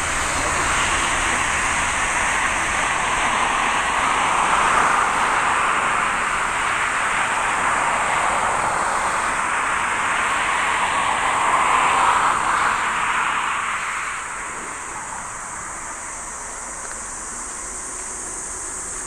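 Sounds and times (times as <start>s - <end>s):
jet engines rushing: 0.0s - 19.0s.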